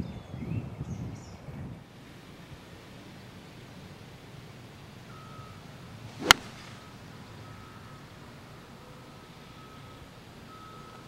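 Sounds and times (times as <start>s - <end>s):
swish of swing: 6.1s - 6.8s
golf club striking ball: 6.2s - 6.9s.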